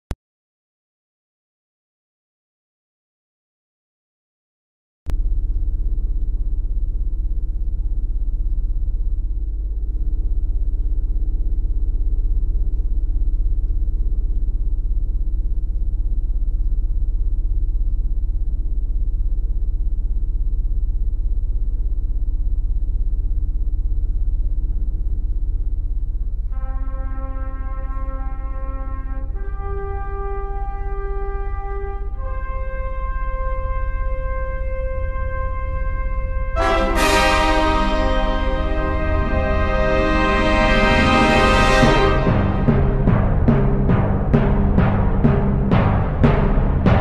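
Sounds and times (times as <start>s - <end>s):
faint high whine: 5.1s - 42.8s
loud low rumbling drone: 5.1s - 47.0s
deep horn-like sustained note: 26.4s - 47.0s.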